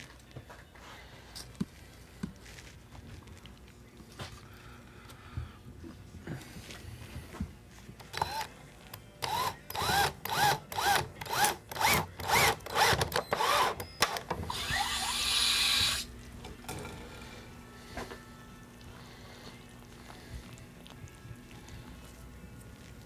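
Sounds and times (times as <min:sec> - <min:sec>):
power drill driving screw: 0:08.1 - 0:08.5, 0:09.2 - 0:16.1.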